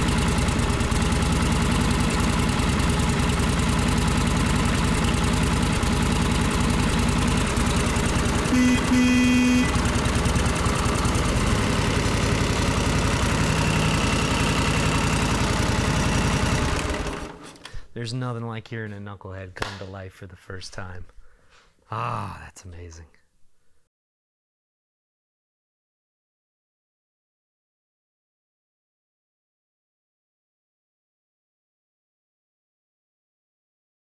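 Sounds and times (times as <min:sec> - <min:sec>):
motorcycle engine idling: 0:00.0 - 0:17.3
short steady tone: 0:08.1 - 0:09.9.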